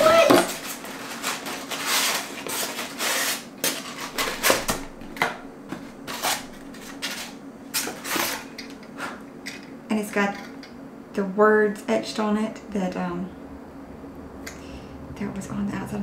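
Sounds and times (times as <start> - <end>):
cardboard box scraping and rustling: 0.1 - 4.7.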